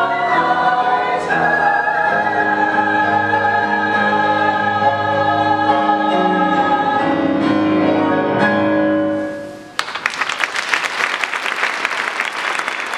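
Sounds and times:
choir with instruments: 0:00.0 - 0:08.7
audience applause: 0:09.8 - 0:12.9.

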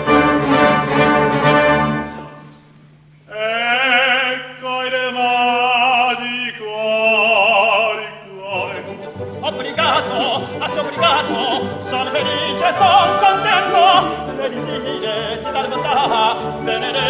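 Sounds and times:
orchestra playing: 0:00.0 - 0:02.5, 0:08.5 - 0:17.0
man singing operatically: 0:03.3 - 0:17.0.

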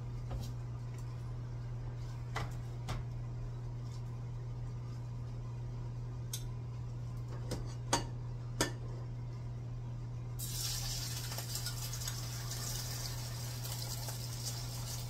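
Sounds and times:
steady low hum: 0:00.0 - 0:15.0
food sizzling in frying pan: 0:10.4 - 0:15.0.

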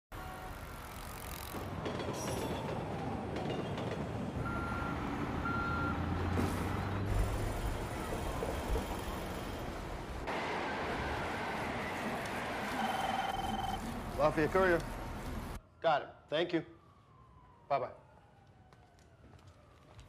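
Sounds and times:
street noise: 0:00.1 - 0:20.0
reversing beeper: 0:04.4 - 0:06.1, 0:12.7 - 0:13.8.

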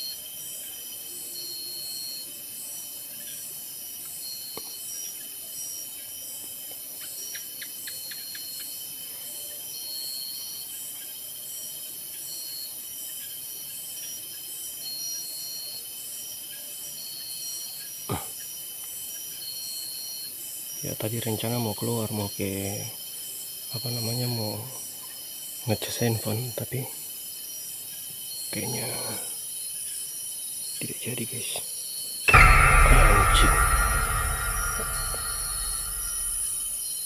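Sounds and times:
night insects chorus: 0:00.0 - 0:36.6
sharp knock: 0:32.3 - 0:36.7
short insect trill: 0:32.3 - 0:36.7.

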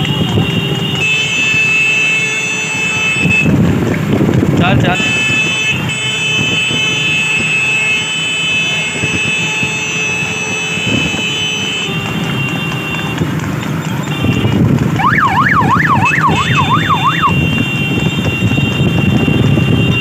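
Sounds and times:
vehicle running noise: 0:00.0 - 0:20.0
electronic siren: 0:15.0 - 0:17.6.

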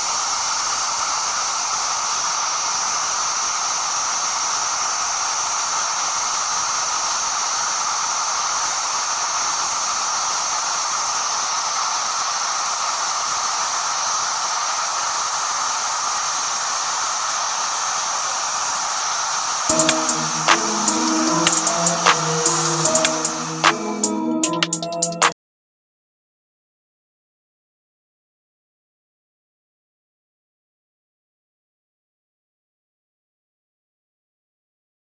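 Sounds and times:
waterfall rushing: 0:00.0 - 0:24.2.

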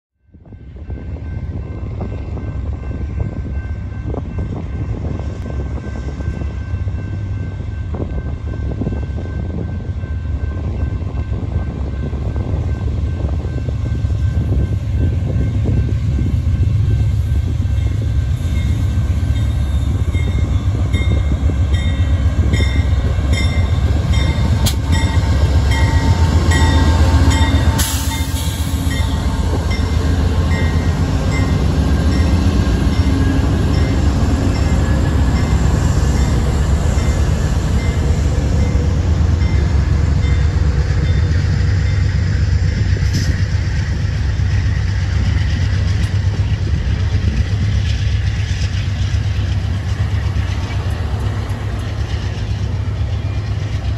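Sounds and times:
diesel locomotive engine rumble: 0:00.2 - 0:53.9
locomotive bell ringing: 0:00.4 - 0:16.3, 0:17.6 - 0:42.5
train wheels on rails: 0:00.4 - 0:53.9.

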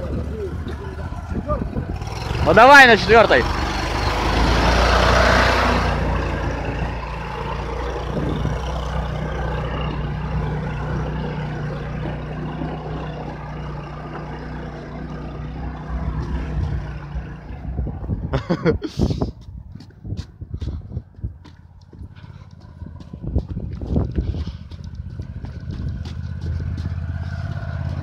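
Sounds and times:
petrol engine running under load: 0:00.0 - 0:18.3.

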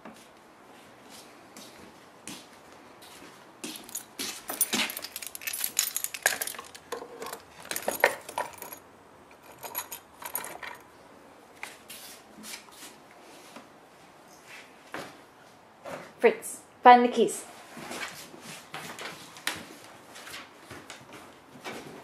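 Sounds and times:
keys jangling: 0:03.7 - 0:10.8.

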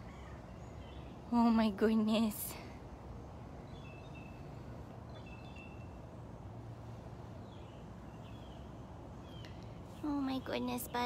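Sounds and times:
low steady rumble: 0:00.0 - 0:11.0
faint bird chirps: 0:03.2 - 0:06.2, 0:07.4 - 0:11.0.

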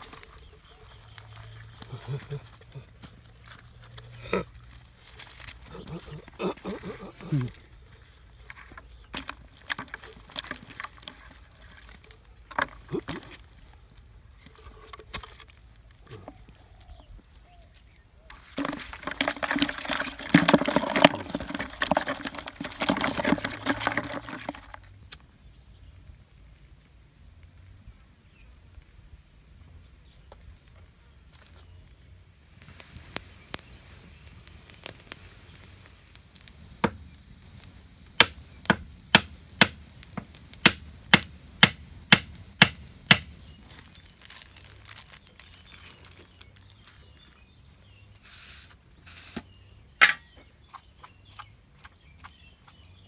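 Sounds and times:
fish thrashing in plastic bucket: 0:08.8 - 0:13.4, 0:18.3 - 0:24.9.

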